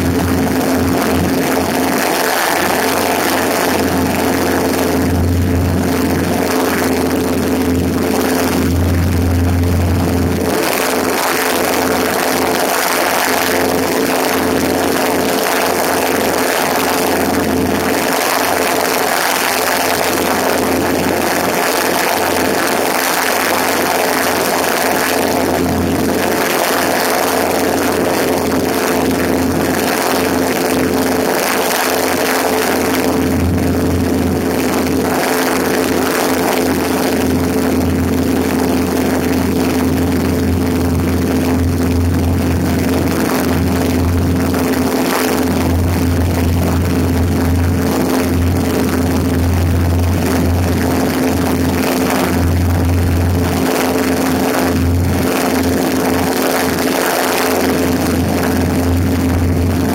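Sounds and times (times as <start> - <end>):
airplane engine and propeller droning: 0.0 - 59.9.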